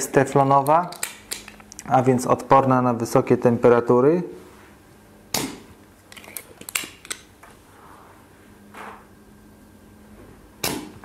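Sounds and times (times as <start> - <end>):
desoldering pump snap: 10.6 - 11.0.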